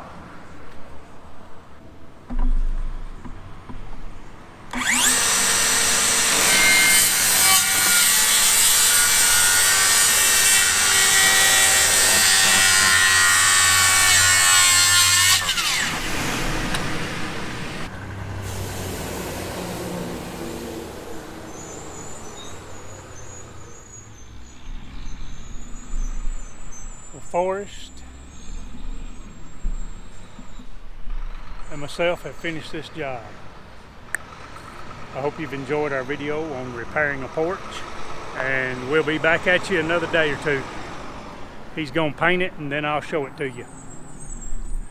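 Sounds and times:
saw blade spinning down: 0:04.7 - 0:16.1
circular saw cutting wood: 0:04.7 - 0:24.2.

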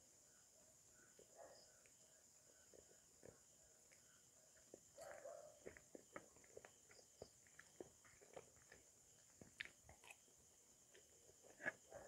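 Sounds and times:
man chewing: 0:07.4 - 0:10.3.

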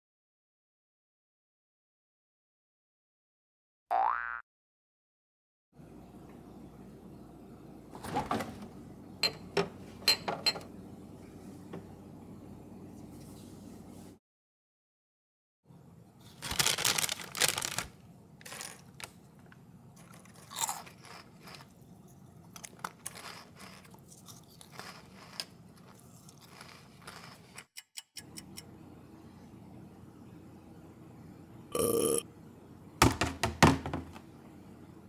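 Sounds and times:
cartoon cookie crunching: 0:20.0 - 0:21.8, 0:22.5 - 0:28.0.

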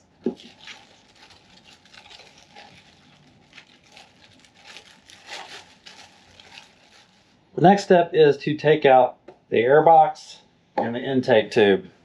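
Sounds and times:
plastic bag crinkling: 0:00.2 - 0:07.4.

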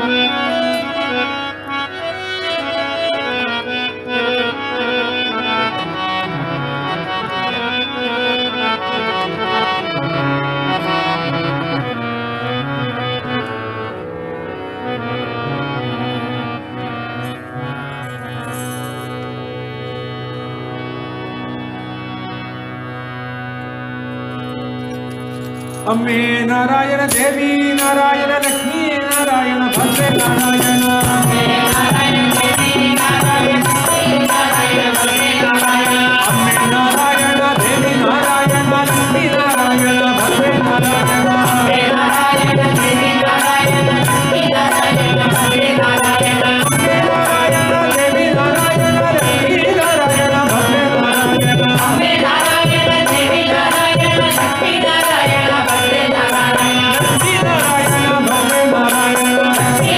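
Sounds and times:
devotional music with drone: 0:00.0 - 0:59.9
steady percussion beat: 0:29.7 - 0:59.9.

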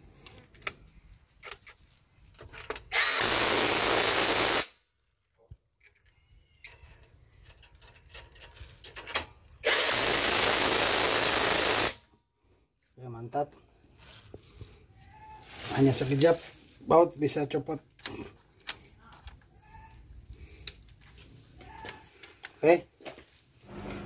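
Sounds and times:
impact wrench running: 0:03.0 - 0:04.7, 0:09.6 - 0:12.0.

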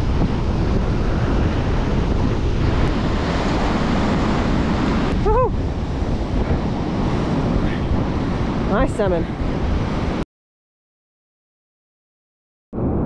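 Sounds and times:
wind buffeting microphone: 0:00.0 - 0:10.2.

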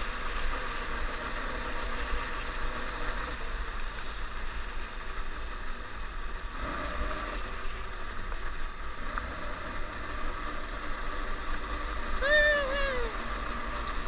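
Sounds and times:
snowmobile engine rumble: 0:00.0 - 0:14.0.

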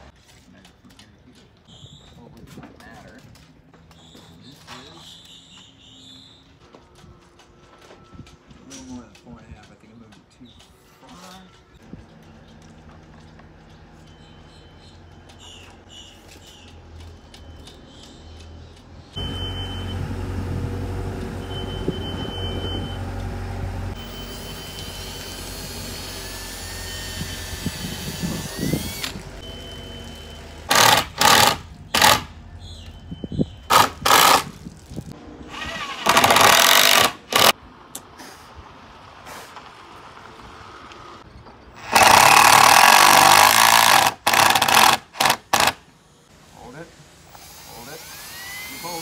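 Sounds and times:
cordless drill driving screws: 0:24.0 - 0:32.3, 0:33.7 - 0:34.7, 0:35.5 - 0:37.5, 0:41.8 - 0:45.8, 0:47.3 - 0:49.0.

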